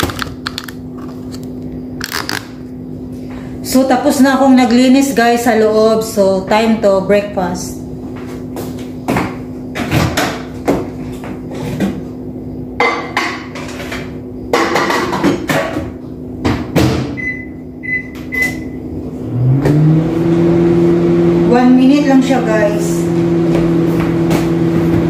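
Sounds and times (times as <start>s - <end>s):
microwave humming: 0.0s - 25.0s
short keypad beeps: 17.2s - 18.8s.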